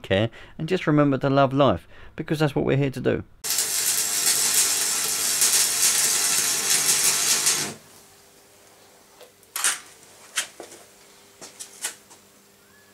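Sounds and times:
arc welding crackling: 3.4 - 8.0.

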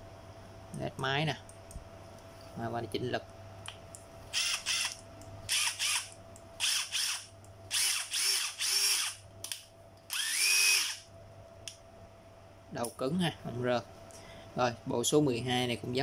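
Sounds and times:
cordless drill spinning: 4.3 - 9.2, 10.1 - 11.0.

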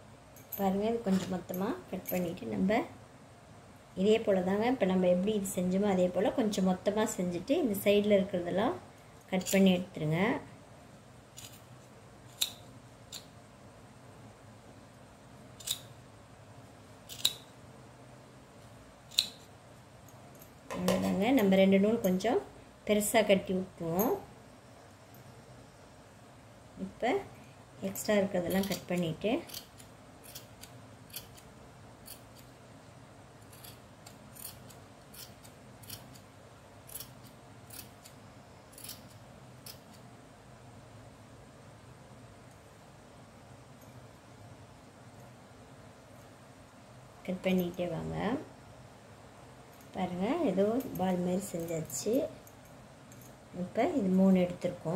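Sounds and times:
scissors snipping yarn: 28.4 - 32.5, 33.4 - 36.3, 36.9 - 40.0.

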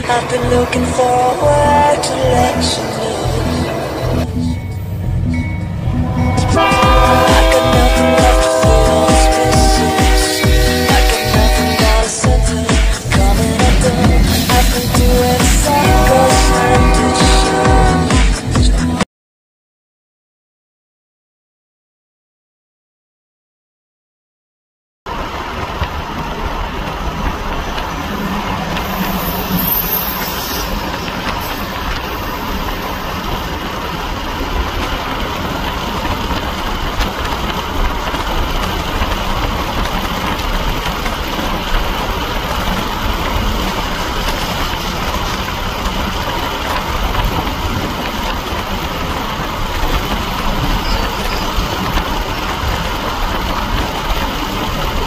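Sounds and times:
vehicle running rumble: 0.0 - 19.0.

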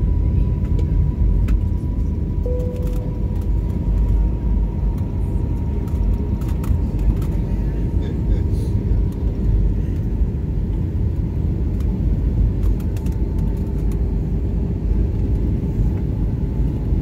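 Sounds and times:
airliner cabin roar: 0.0 - 17.0.

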